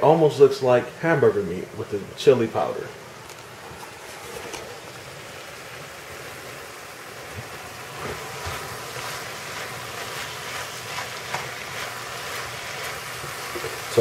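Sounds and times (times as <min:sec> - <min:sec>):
meat sizzling in a frying pan: 0:04.7 - 0:14.0.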